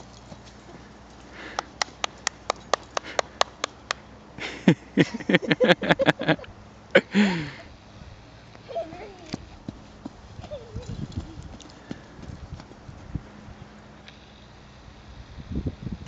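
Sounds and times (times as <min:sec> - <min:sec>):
person laughing: 0:04.4 - 0:07.7.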